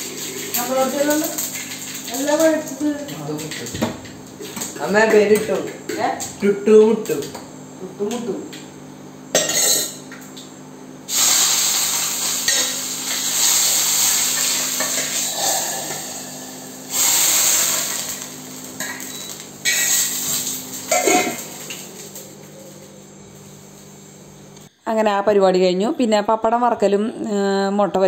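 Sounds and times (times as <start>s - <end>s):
hot oil sizzling: 0.0s - 7.1s, 9.4s - 24.2s.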